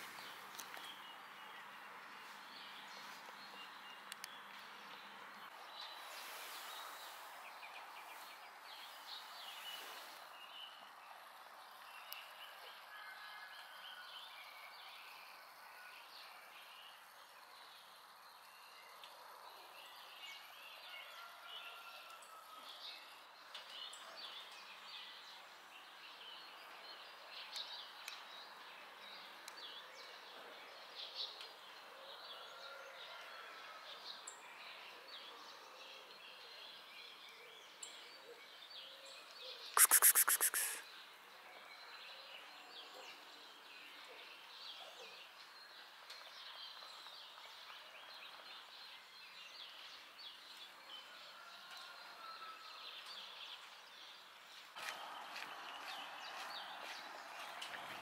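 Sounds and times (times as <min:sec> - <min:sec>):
faint bird chirps: 0:39.5 - 0:40.9.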